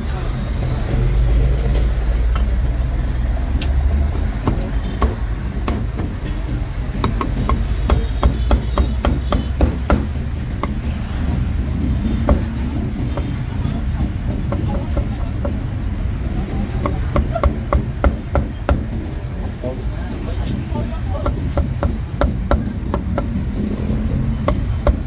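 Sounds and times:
meat cleaver chopping on wooden block: 7.0s - 10.8s, 24.5s - 25.0s.

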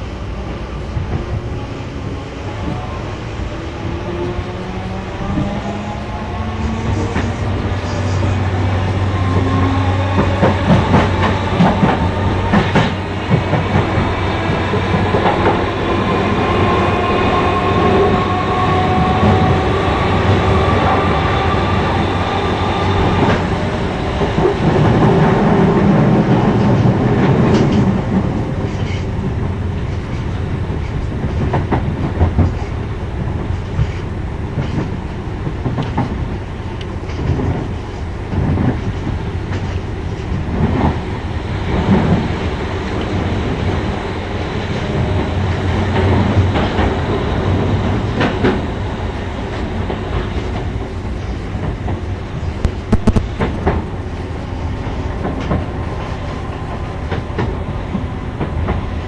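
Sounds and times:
train wheels clicking over rail joints: 9.2s - 16.3s, 22.8s - 41.1s, 44.8s - 59.0s.

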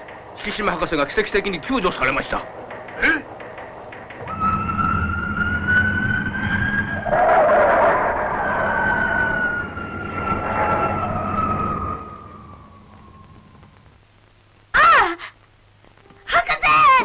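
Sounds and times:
rushing noise: 4.0s - 14.0s
jet engines whining: 4.1s - 13.9s.

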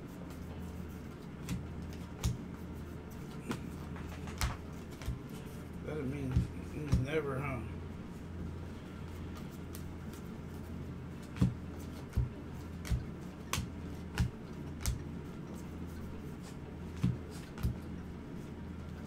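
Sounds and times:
low steady hum: 0.0s - 19.0s
cards snapping while flipped: 1.2s - 2.6s, 3.2s - 5.3s, 11.2s - 15.1s.

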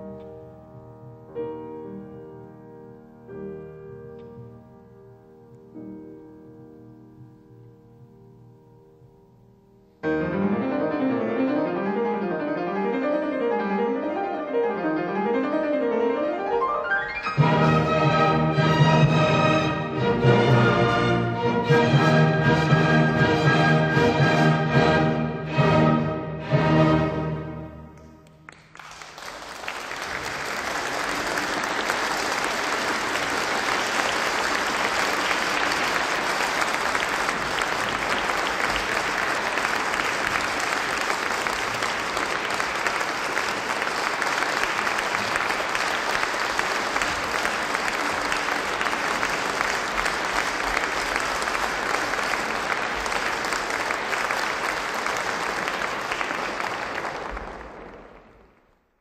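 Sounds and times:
audience applauding: 28.0s - 58.8s.

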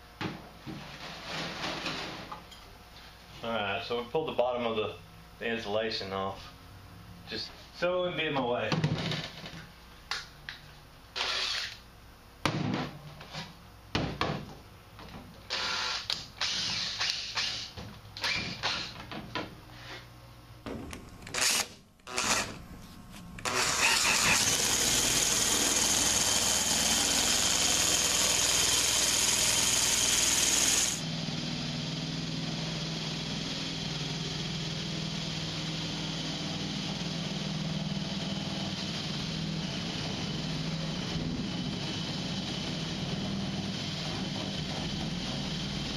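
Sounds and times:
power nibbler cutting steel: 21.3s - 22.6s, 23.4s - 31.0s.

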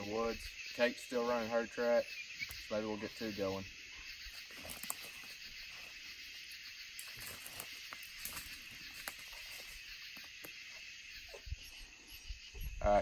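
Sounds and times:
crickets chirping: 0.0s - 13.0s
footsteps in leaf litter: 7.0s - 10.0s.

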